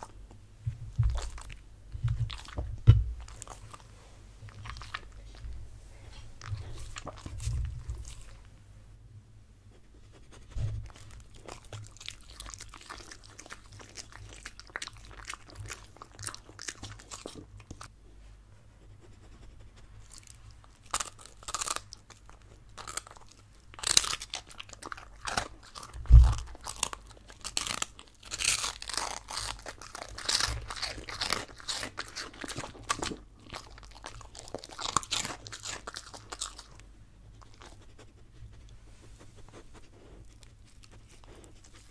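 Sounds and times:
dog crunching toast: 0:04.4 - 0:05.5, 0:10.8 - 0:17.9, 0:20.0 - 0:36.8.

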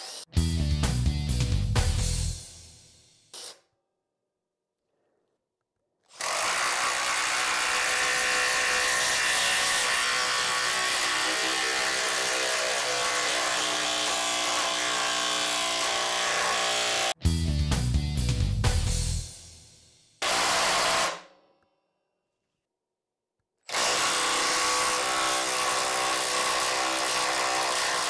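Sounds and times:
impact driver driving screw: 0:20.2 - 0:21.3, 0:23.7 - 0:28.0.

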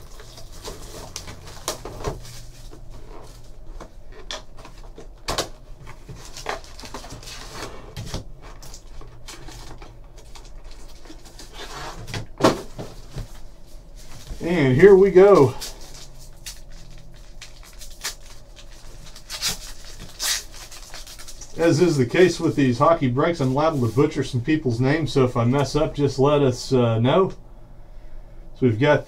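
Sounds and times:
foil packs crinkling: 0:00.0 - 0:12.0, 0:14.1 - 0:24.3
plastic shrink wrap crinkling: 0:08.5 - 0:11.6, 0:14.1 - 0:24.2.

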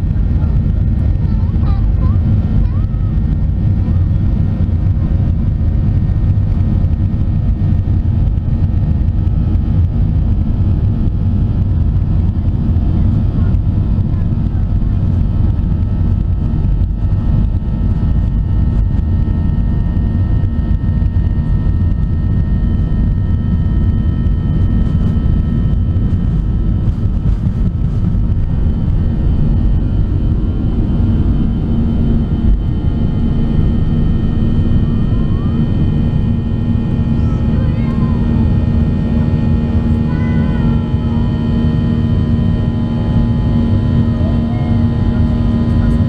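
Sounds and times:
high whining fan tones: 0:00.0 - 0:46.0
jet engines rumbling in cabin: 0:00.0 - 0:46.0
runway rumble: 0:00.0 - 0:46.0.

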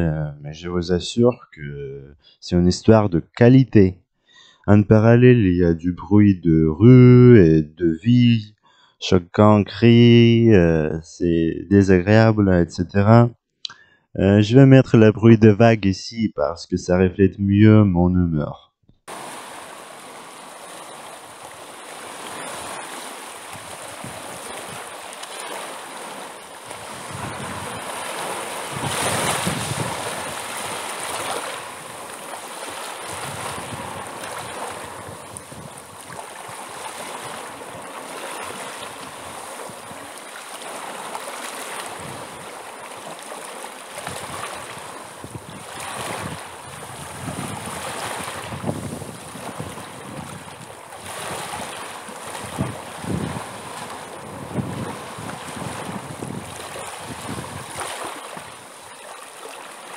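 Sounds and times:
sea waves breaking on shore: 0:19.1 - 0:59.9.

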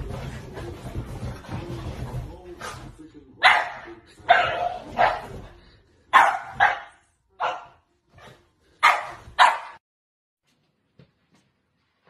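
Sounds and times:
dog barking: 0:03.4 - 0:05.4, 0:06.1 - 0:07.8, 0:08.8 - 0:09.8.

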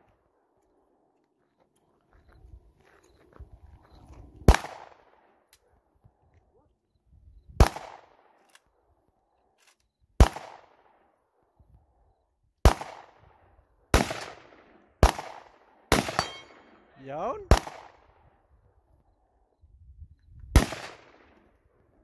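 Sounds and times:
gunshots with echo: 0:14.0 - 0:16.8.

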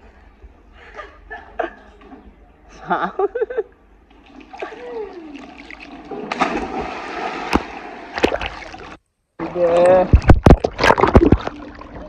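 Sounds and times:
water splashing and churning: 0:04.1 - 0:12.0
sharp water slap: 0:06.1 - 0:08.7.

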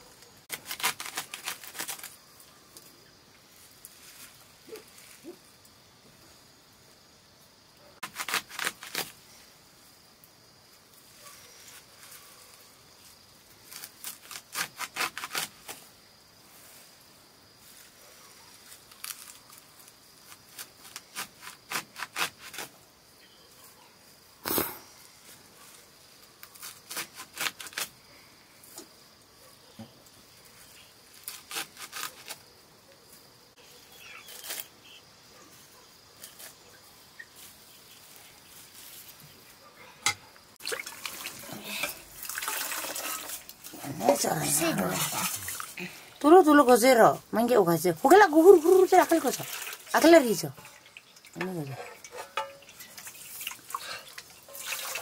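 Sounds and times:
blade cutting leafy greens: 0:00.5 - 0:02.2, 0:08.0 - 0:09.2, 0:13.6 - 0:15.8, 0:20.2 - 0:22.8, 0:26.4 - 0:27.9, 0:31.1 - 0:32.5, 0:34.2 - 0:34.7.

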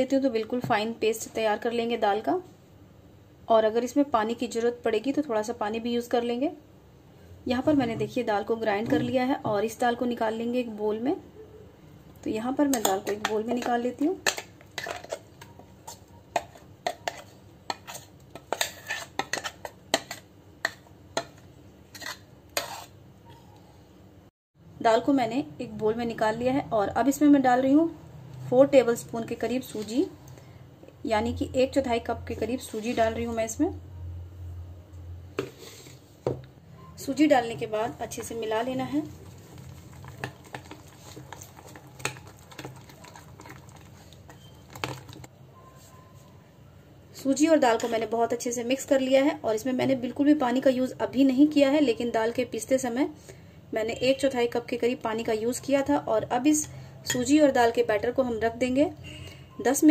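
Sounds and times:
spoon scraping a jar: 0:14.8 - 0:21.3, 0:21.9 - 0:23.0, 0:32.5 - 0:33.3, 0:39.1 - 0:46.2
metal spoon clinking: 0:57.1 - 0:57.3.

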